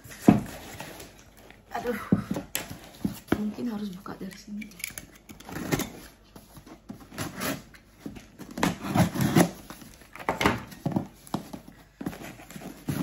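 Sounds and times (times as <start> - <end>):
knife cutting cardboard and tape: 7.0 - 11.5.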